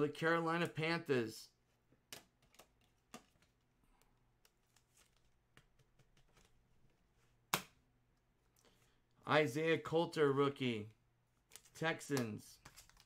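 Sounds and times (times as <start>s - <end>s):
trading cards clicking and rustling: 11.4s - 13.0s.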